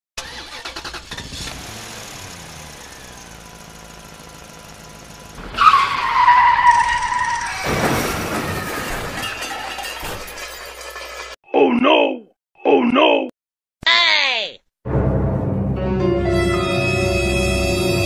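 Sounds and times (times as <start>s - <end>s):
engine running: 0.2s - 6.1s
tyre screech: 5.4s - 10.4s.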